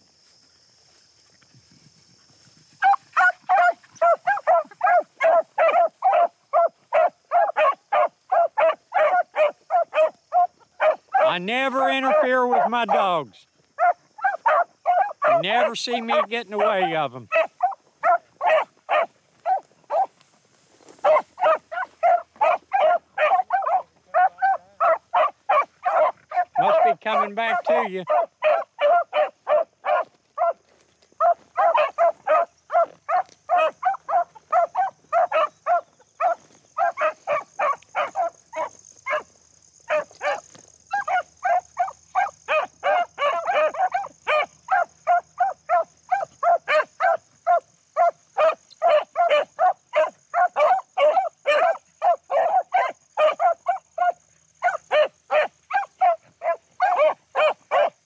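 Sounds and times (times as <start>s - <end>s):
hounds barking rapidly: 2.8s - 20.2s, 20.8s - 30.6s, 31.2s - 58.0s.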